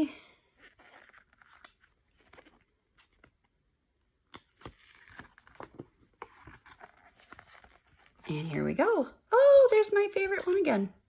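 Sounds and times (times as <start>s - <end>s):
paper rustling: 0.6s - 3.5s, 4.3s - 8.3s.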